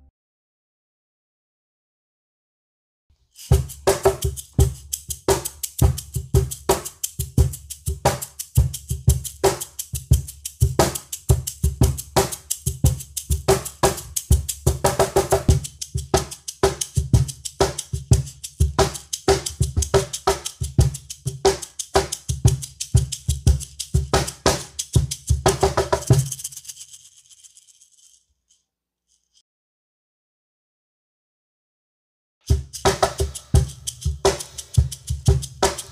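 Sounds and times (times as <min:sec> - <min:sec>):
wooden shaker rattle: 0:03.2 - 0:29.4, 0:32.4 - 0:35.9
cajon bass thumps and slaps: 0:03.5 - 0:24.6, 0:32.5 - 0:35.9.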